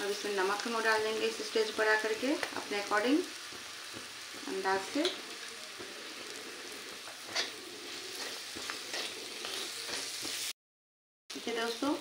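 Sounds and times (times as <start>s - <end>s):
peas sizzling in oil: 0.0s - 10.6s, 11.3s - 12.0s
spatula scraping pan: 1.9s - 10.5s.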